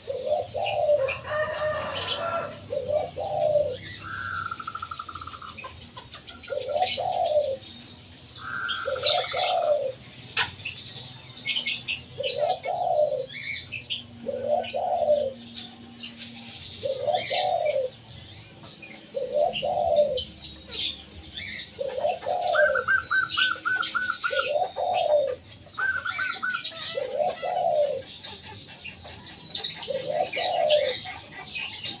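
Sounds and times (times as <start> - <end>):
dove cooing single note: 0.0 - 5.7, 6.5 - 7.6, 8.4 - 10.0, 12.2 - 15.5, 16.8 - 18.0, 19.1 - 20.9, 21.6 - 28.4, 29.8 - 32.0
small birds chirping and trilling: 0.0 - 32.0.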